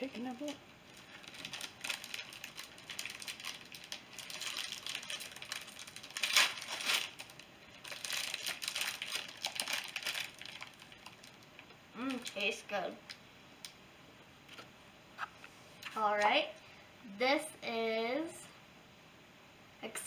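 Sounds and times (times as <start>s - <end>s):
plastic wrapper crinkling: 0.0s - 12.6s.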